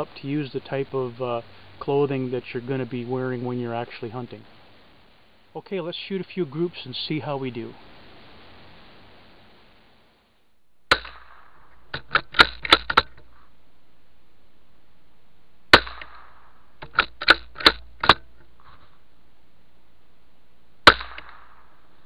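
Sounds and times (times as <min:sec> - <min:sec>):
rifle shots: 0:10.9 - 0:13.2, 0:15.7 - 0:18.2, 0:20.8 - 0:21.9
rifle action clicks: 0:11.9 - 0:13.3, 0:16.8 - 0:18.2.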